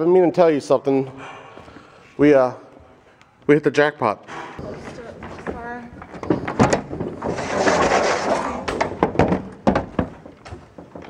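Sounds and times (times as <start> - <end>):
case scraping slide: 6.8 - 9.0
road cases knocking: 8.7 - 11.0.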